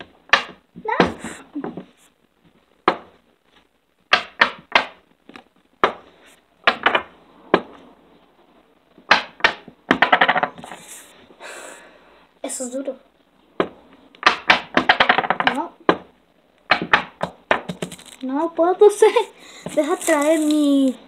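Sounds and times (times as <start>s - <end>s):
plastic stick knocking and clacking: 13.6s - 18.1s.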